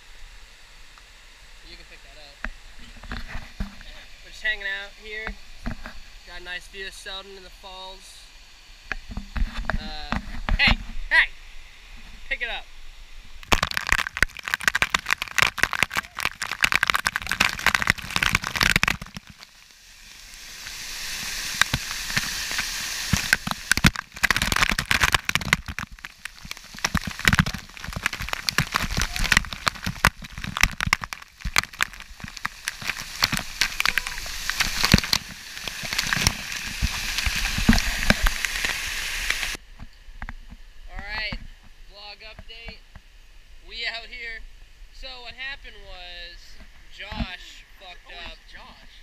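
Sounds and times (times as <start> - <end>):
water splashing on camera: 13.4 - 39.6.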